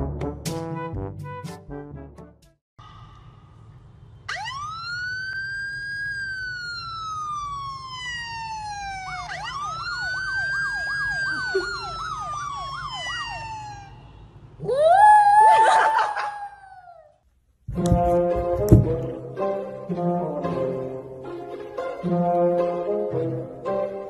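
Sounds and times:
electronic siren wailing: 4.3s - 14.2s
fast siren yelp: 4.3s - 17.0s.

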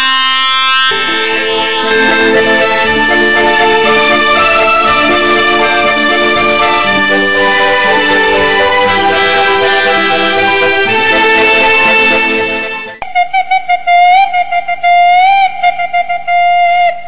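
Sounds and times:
instrumental music with held chords: 0.8s - 13.0s.

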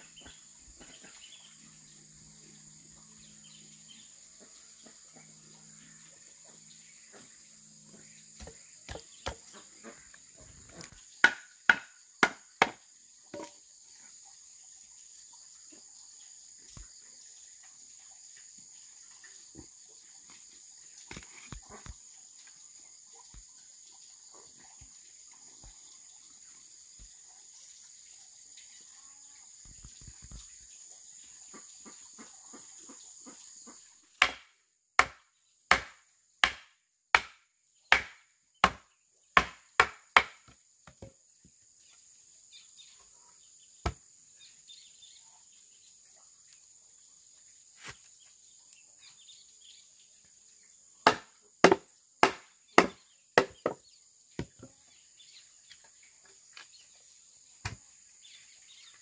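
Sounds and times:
high insect drone: 0.0s - 33.9s, 38.8s - 59.0s
chopping strikes into wood: 8.4s - 9.5s, 10.8s - 13.6s, 34.2s - 41.1s, 43.8s - 44.0s, 51.0s - 53.8s, 57.6s - 57.8s.

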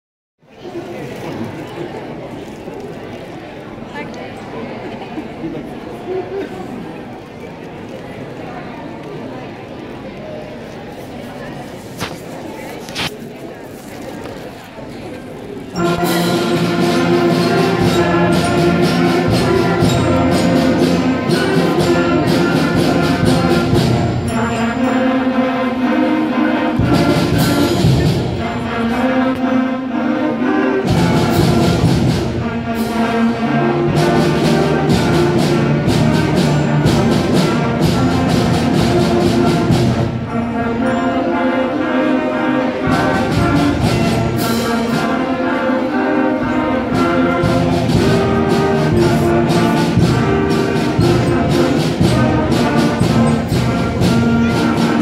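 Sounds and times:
percussion hits: 15.8s - 25.3s, 26.8s - 29.6s, 30.8s - 41.2s, 42.8s - 45.3s, 46.5s - 55.0s
brass and woodwind chords: 15.8s - 55.0s.

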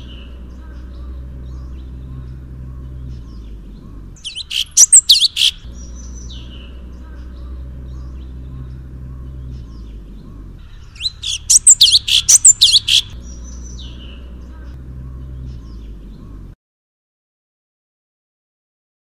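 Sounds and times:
soft bird chirps: 0.0s - 16.6s
steady low hum: 0.0s - 16.6s
songbird whistling: 4.2s - 6.9s, 7.9s - 14.4s.

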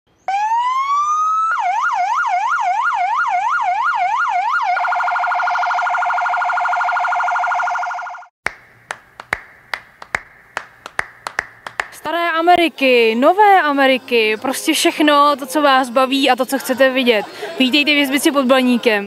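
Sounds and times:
electronic siren wailing and yelping: 0.3s - 8.3s.

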